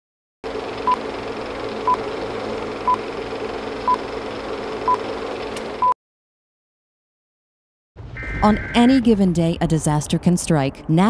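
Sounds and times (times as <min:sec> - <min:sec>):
short high beeps: 0:08.2 - 0:08.8.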